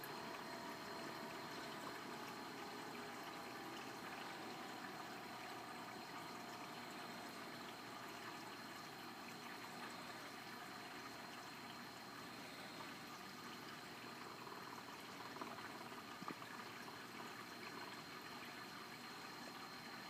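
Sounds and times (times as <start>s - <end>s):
aquarium water rushing: 0.0s - 20.0s.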